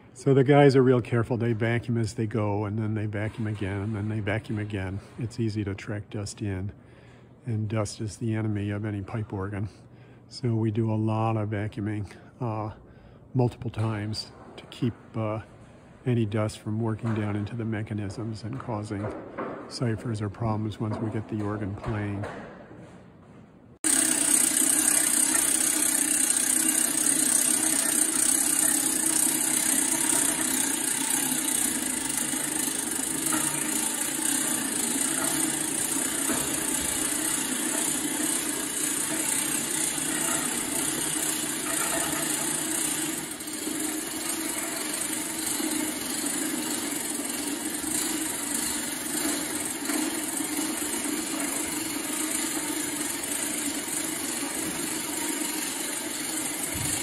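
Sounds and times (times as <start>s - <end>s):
motor humming with high whine: 23.8s - 57.0s.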